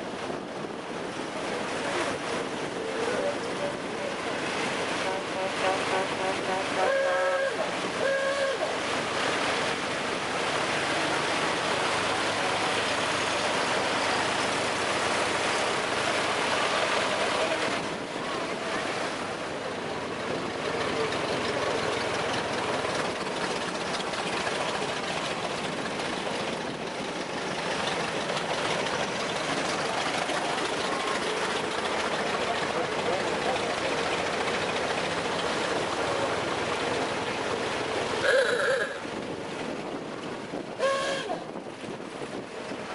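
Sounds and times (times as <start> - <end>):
steady rushing noise: 8.7 - 38.2
car horn toots: 40.8 - 41.3.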